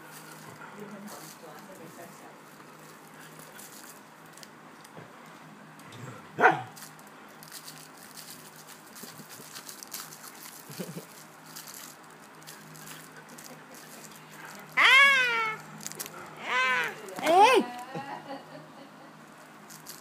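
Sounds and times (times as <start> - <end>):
rustling and mouthing noises: 0.0 - 18.3, 19.2 - 20.0
small dog barking: 6.4 - 6.8.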